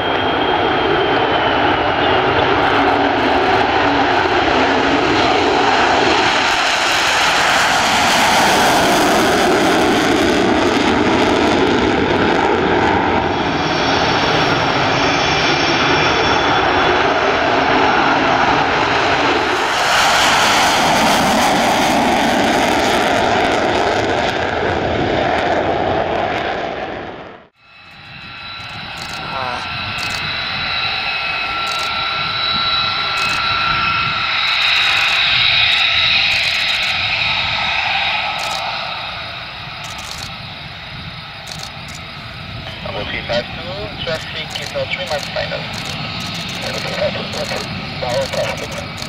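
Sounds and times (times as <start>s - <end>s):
jet engine roar: 0.0s - 49.0s.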